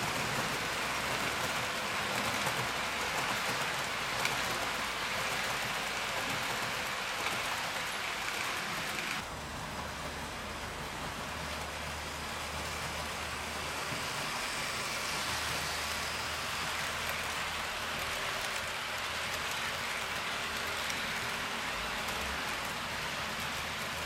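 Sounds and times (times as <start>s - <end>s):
model train wheels hissing: 10.0s - 24.0s.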